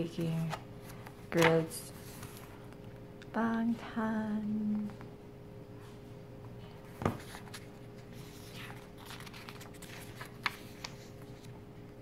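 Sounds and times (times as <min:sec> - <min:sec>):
faint steady hum: 0:00.0 - 0:12.0
paper pages rustling: 0:00.1 - 0:02.8, 0:06.9 - 0:11.6.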